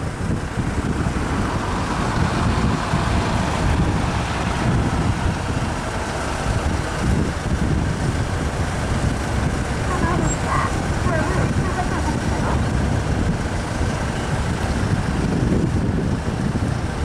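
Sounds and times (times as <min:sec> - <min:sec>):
truck engine rumbling: 0:00.0 - 0:17.0
wind buffeting microphone: 0:00.0 - 0:17.0.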